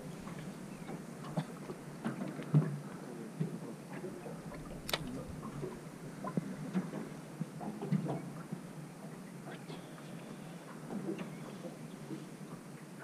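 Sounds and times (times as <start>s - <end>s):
sharp click: 4.6s - 5.3s.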